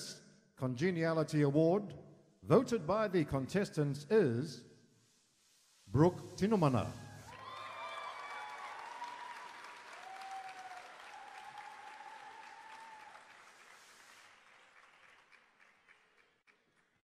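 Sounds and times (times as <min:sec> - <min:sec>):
audience applauding: 0:07.3 - 0:17.0.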